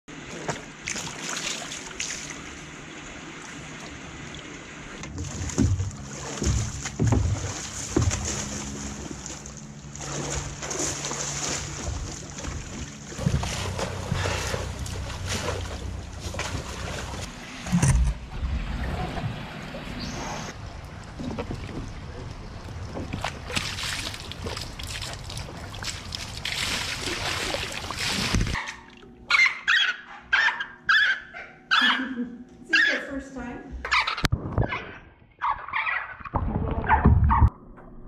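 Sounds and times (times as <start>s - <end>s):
water splashing in plastic tubs: 0.1s - 29.1s
knocks against tub: 5.0s - 8.5s.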